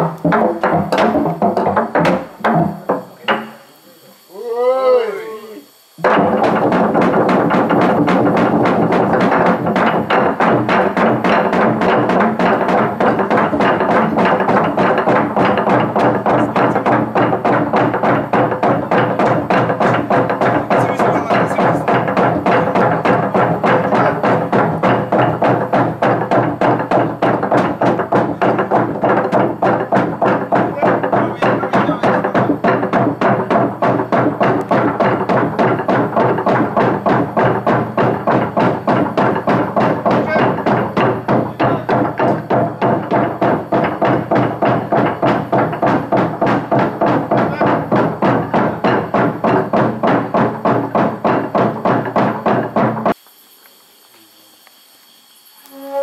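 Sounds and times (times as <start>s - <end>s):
wooden drums beaten fast: 0.0s - 53.2s
steady held tone: 53.1s - 56.0s.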